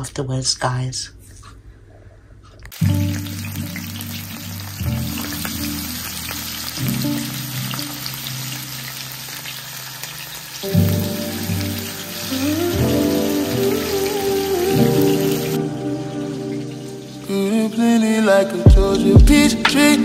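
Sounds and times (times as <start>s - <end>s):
fish sizzling in hot oil: 2.8s - 17.8s
music with deep bass: 18.7s - 20.0s.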